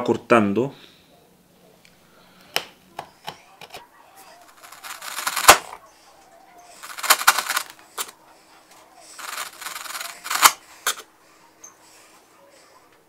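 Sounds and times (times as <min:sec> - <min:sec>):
sharp wood crack: 0:04.5 - 0:05.8, 0:06.8 - 0:08.1, 0:09.2 - 0:11.0.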